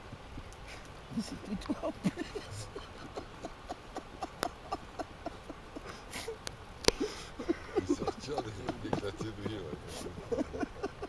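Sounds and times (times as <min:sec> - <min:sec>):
breath puffs blowing: 0:05.8 - 0:07.8.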